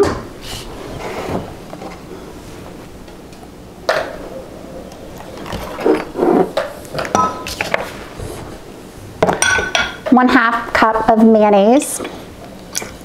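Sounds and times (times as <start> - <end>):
kitchen utensils knocking: 9.2 - 10.3.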